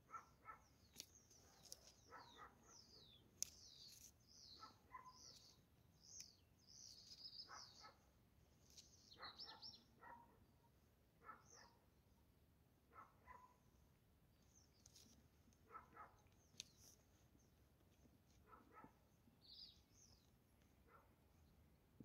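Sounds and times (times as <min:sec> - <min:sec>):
faint birdsong chirps and whistles: 0:00.1 - 0:11.8, 0:14.3 - 0:15.3, 0:19.4 - 0:20.4.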